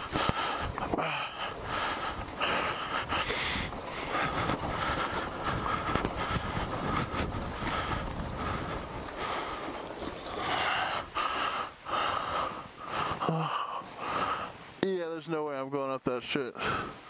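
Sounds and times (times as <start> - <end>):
rider heavy breathing: 0.0 - 14.8, 16.5 - 17.0.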